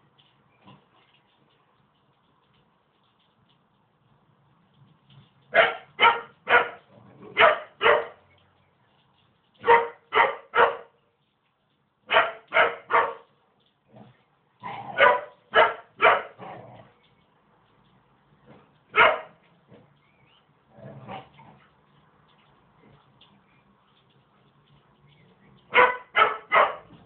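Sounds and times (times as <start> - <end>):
puppy barking: 5.5 - 8.2, 9.6 - 11.0, 12.1 - 13.3, 14.9 - 16.6, 18.9 - 19.4, 25.7 - 26.9.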